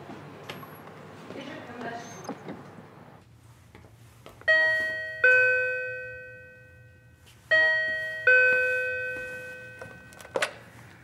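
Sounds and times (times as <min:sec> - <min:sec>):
two-note door chime: 0:04.5 - 0:10.4.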